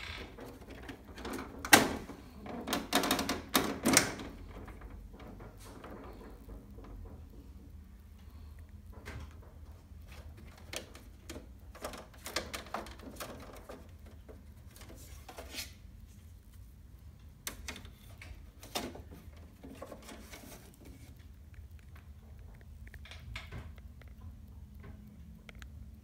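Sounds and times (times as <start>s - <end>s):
plastic clicks and scraping: 10.0s - 15.8s, 17.4s - 25.8s.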